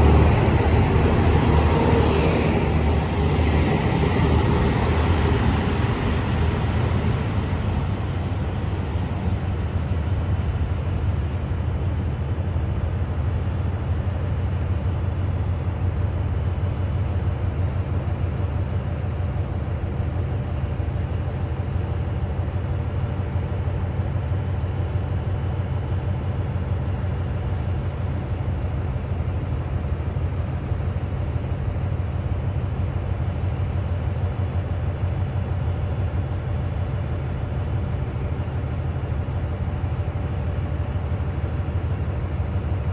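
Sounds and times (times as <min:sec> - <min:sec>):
diesel train pulling away: 0:00.0 - 0:12.6.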